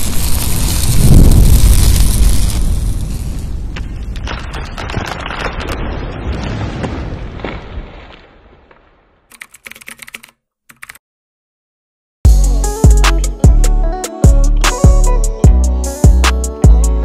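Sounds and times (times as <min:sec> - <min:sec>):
rumbling boom: 0:00.2 - 0:08.0
rapid clicks: 0:09.3 - 0:11.0
music with heavy bass beat: 0:12.3 - 0:17.0.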